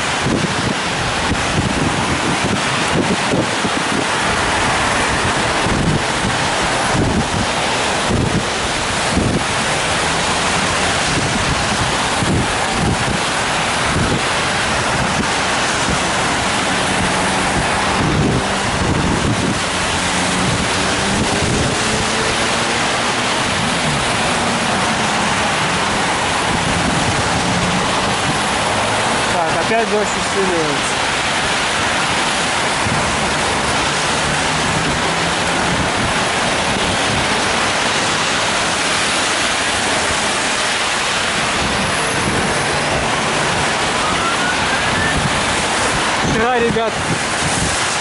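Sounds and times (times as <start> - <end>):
car tyres hissing on wet road: 0.0 - 48.0
rain falling on umbrella: 0.0 - 48.0.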